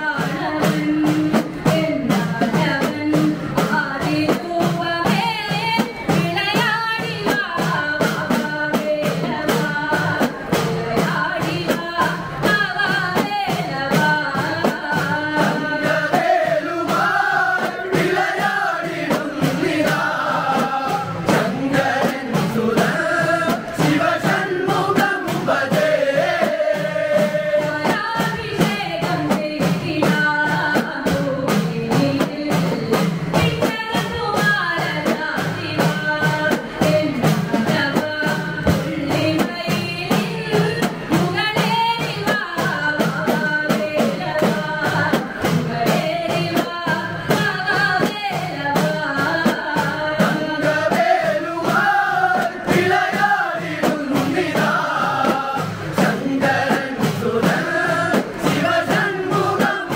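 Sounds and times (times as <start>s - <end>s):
hand drums beating: 0.0s - 59.9s
woman and men singing: 0.0s - 59.9s.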